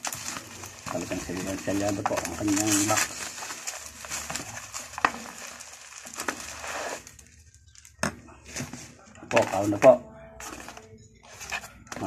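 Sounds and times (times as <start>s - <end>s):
bubble wrap crinkling and rustling: 0.0s - 12.0s.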